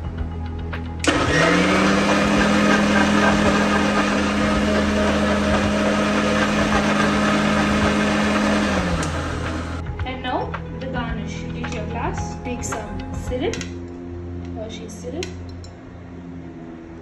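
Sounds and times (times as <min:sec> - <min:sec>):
mixer motor whining: 0:01.0 - 0:09.8
thick mix churning in jar: 0:02.4 - 0:09.0.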